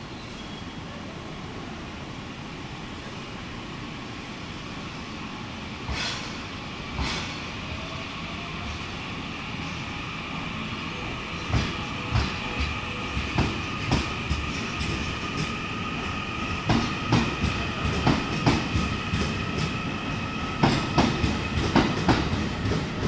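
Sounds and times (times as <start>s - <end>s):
train rolling rumble: 0.0s - 23.0s
train wheels clacking on track: 5.8s - 7.7s, 11.3s - 23.0s.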